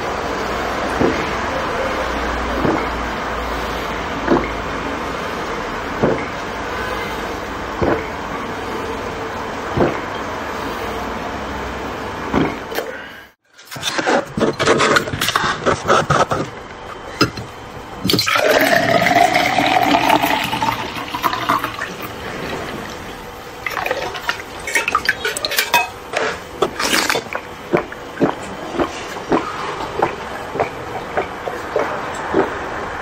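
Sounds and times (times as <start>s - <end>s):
milk drink pouring into glass: 18.1s - 23.0s.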